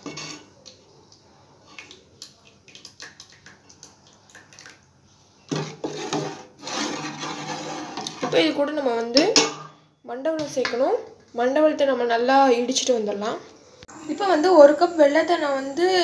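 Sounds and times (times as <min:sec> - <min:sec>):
ladle clinking on pot: 0:00.0 - 0:00.5, 0:09.2 - 0:09.8
ladle scraping and stirring pot: 0:00.0 - 0:00.6, 0:05.4 - 0:09.8.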